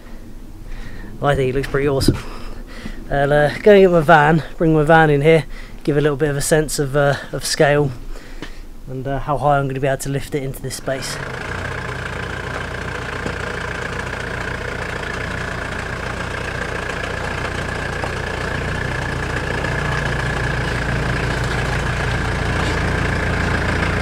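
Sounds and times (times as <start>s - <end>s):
van engine idling: 10.7s - 24.0s.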